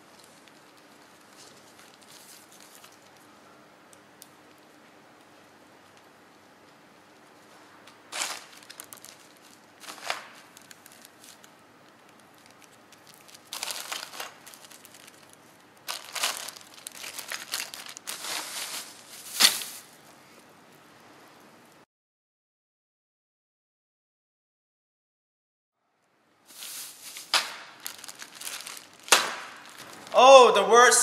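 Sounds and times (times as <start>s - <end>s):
plastic bags crinkling: 0.0s - 3.3s, 8.1s - 20.0s, 26.5s - 30.6s.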